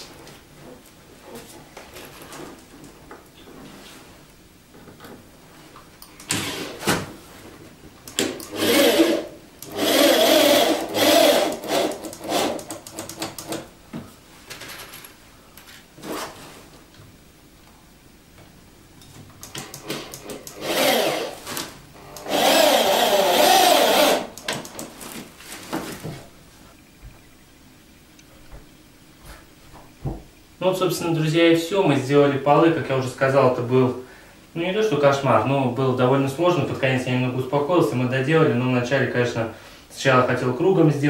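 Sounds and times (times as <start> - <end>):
electric drill drilling wood: 6.3 - 6.8, 8.2 - 12.6, 19.6 - 21.4, 22.0 - 24.4.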